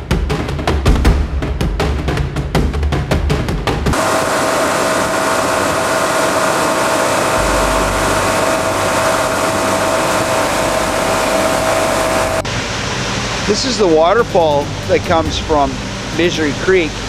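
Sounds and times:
motorboat engine droning: 3.9s - 17.0s
wake rushing: 4.0s - 17.0s.

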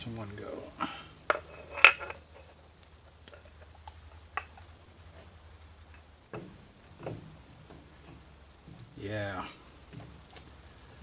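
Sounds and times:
dull knocks: 6.3s - 9.0s.

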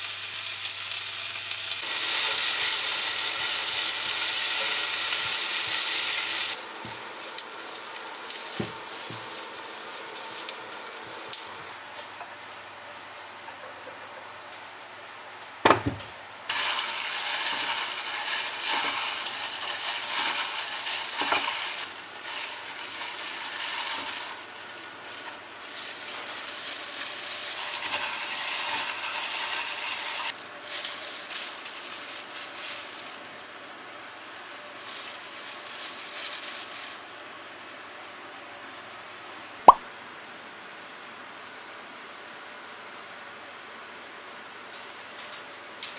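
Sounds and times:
food sizzling in a pan: 0.0s - 11.8s, 16.5s - 37.5s.

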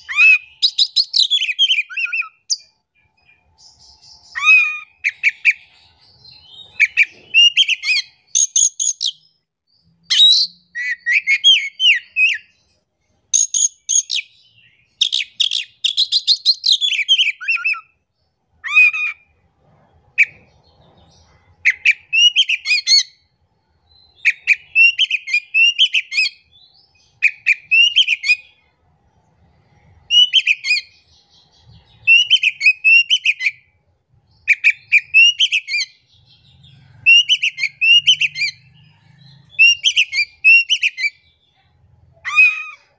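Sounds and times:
songbird whistling and chattering: 0.0s - 9.4s, 10.1s - 12.6s, 13.4s - 17.9s, 21.6s - 23.2s, 23.9s - 28.6s, 30.0s - 33.7s, 34.3s - 38.7s, 39.4s - 41.3s, 42.2s - 42.9s.

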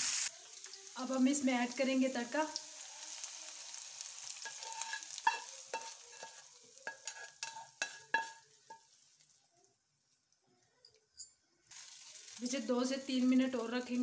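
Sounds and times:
hot oil sizzling: 0.0s - 14.0s
spatula knocking on pan: 4.5s - 8.8s.

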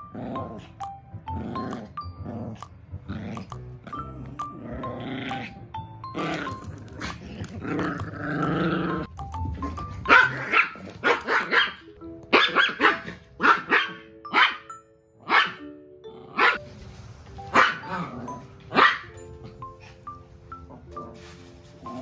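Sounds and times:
dogs growling: 0.0s - 11.0s.

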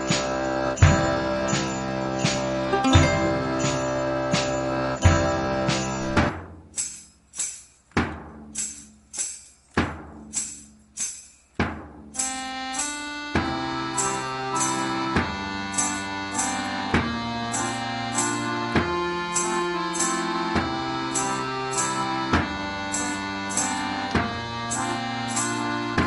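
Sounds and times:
percussion on a steady beat: 0.0s - 26.0s
sustained instrument notes: 0.4s - 6.2s.

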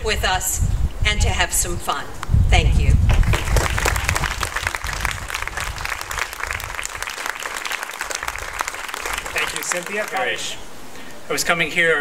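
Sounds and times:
audience applauding: 3.1s - 10.6s.

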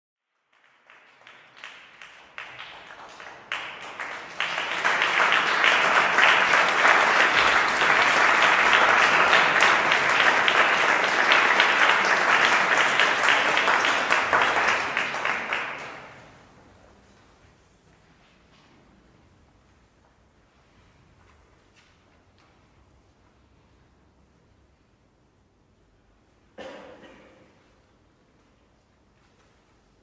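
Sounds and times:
audience applauding: 0.4s - 16.5s.

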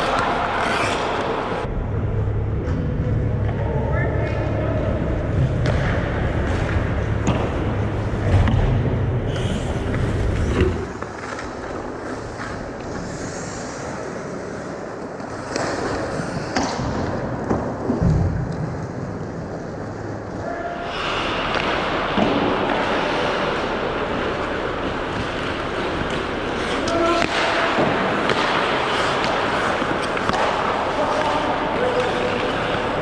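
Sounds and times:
hockey sticks and puck clacking: 0.0s - 1.7s, 4.2s - 33.0s
skates scraping on ice: 0.0s - 1.7s, 5.0s - 33.0s
low rumble: 1.6s - 10.9s.

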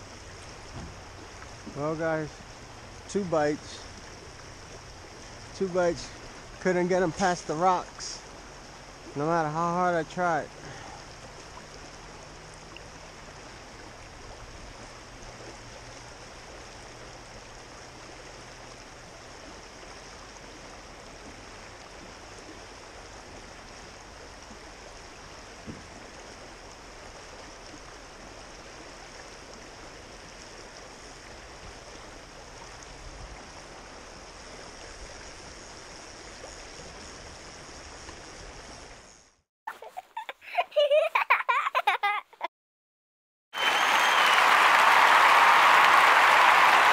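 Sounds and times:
river current rushing: 0.0s - 28.4s, 43.6s - 46.9s.

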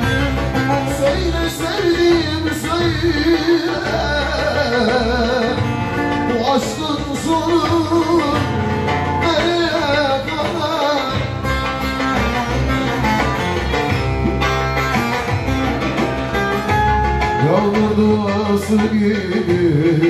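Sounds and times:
man singing: 0.0s - 12.6s, 17.3s - 20.0s
plucked lute: 0.0s - 20.0s.

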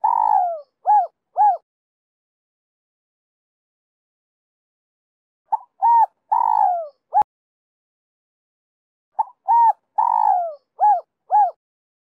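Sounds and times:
dove cooing: 0.0s - 1.6s, 5.5s - 7.3s, 9.2s - 11.6s.

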